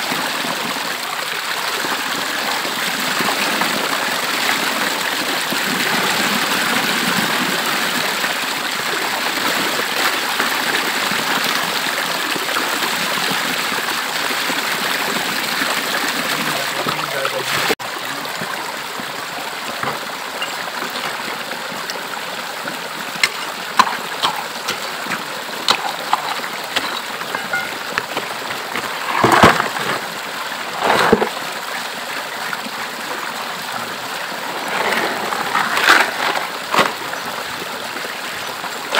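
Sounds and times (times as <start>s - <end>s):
rocky stream rushing: 0.0s - 38.9s
stones dropped into plastic bucket: 25.7s - 30.1s, 34.7s - 37.0s.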